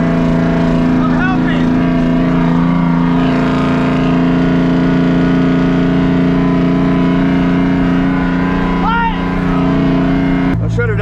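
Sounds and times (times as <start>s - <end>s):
truck diesel engine drone: 0.0s - 11.0s.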